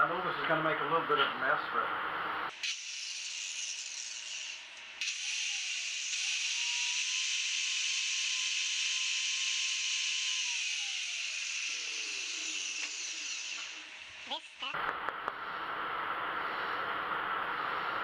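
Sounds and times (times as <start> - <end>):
angle grinder running: 2.5 - 14.8.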